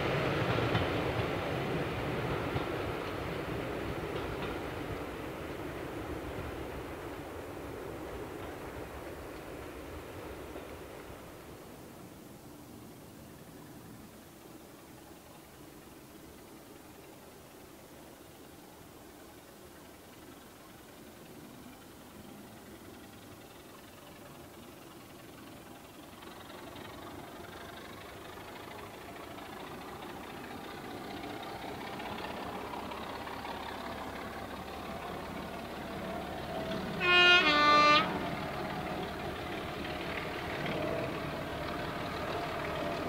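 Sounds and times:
diesel locomotive engine: 0.0s - 43.0s
two-tone train horn: 36.6s - 39.1s.

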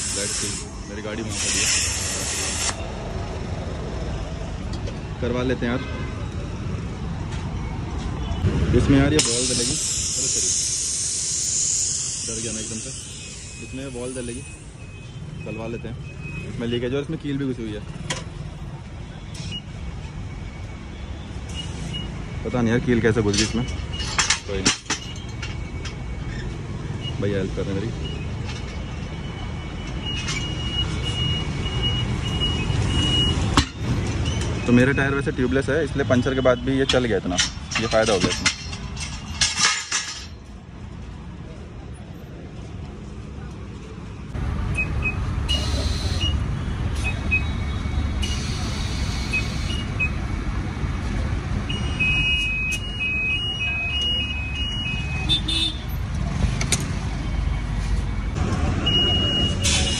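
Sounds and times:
low rumble of road traffic: 0.0s - 59.9s
high electronic beeps: 27.9s - 33.5s, 44.7s - 50.3s, 51.7s - 55.3s, 57.2s - 59.9s
sharp metal clank: 37.4s - 40.4s.

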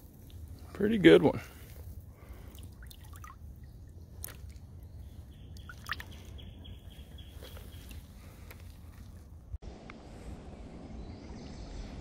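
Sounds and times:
bird chirps: 3.2s - 8.5s
low rumble: 8.1s - 12.0s.

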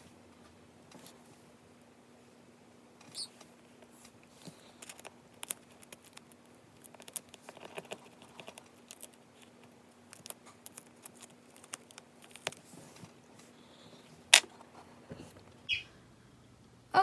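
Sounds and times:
faint steady hum: 0.0s - 17.0s
tweezers scratching tape: 4.8s - 12.6s.

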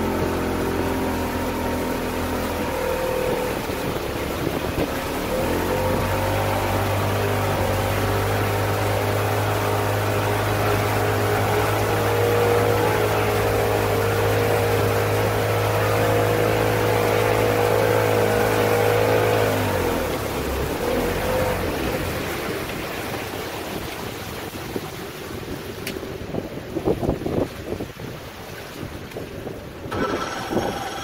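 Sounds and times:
outboard motor running: 0.0s - 31.0s
water splashing: 0.0s - 31.0s
wind hiss: 29.9s - 31.0s.

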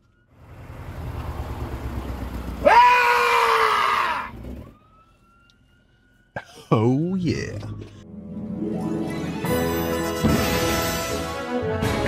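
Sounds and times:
loud high scream: 2.6s - 4.3s.

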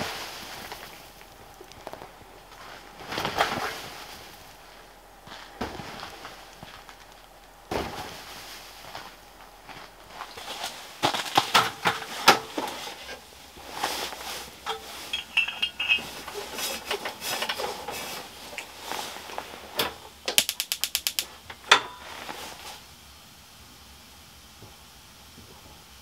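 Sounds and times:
quick run of clicks: 20.4s - 21.3s.

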